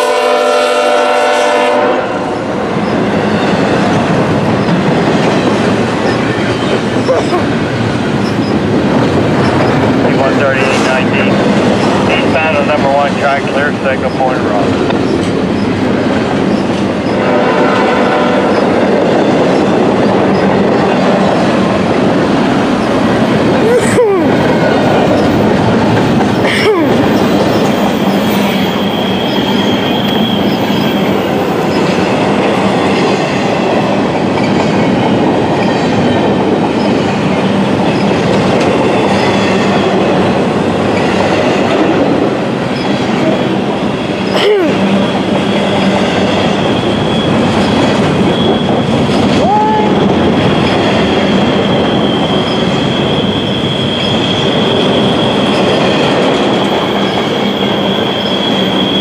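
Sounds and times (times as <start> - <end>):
freight train wheels rumbling: 0.0 - 59.0
high wheel squeal: 13.5 - 15.8, 26.2 - 32.1, 42.7 - 59.0.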